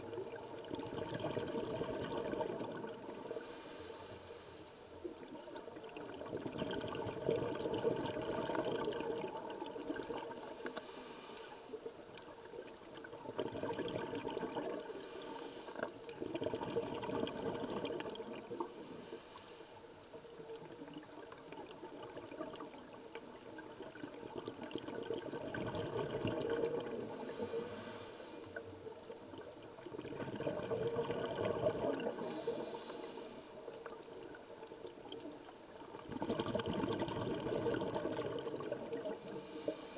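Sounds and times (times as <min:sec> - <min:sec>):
exhaled bubbles underwater: 0:00.0 - 0:03.5, 0:05.0 - 0:10.9, 0:11.8 - 0:19.0, 0:20.0 - 0:39.9
regulator inhalation hiss: 0:02.4 - 0:05.0, 0:10.2 - 0:11.8, 0:14.8 - 0:16.0, 0:18.6 - 0:20.0, 0:26.9 - 0:28.8, 0:32.0 - 0:33.8, 0:39.1 - 0:39.9.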